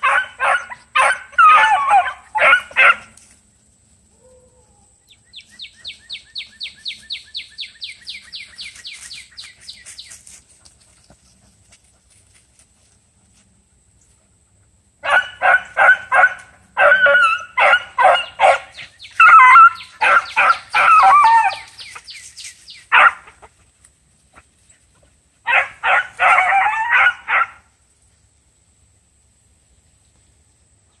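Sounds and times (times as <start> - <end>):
dog barking and yelping: 0.0 - 3.2, 15.0 - 22.1, 22.9 - 23.6, 25.4 - 27.6.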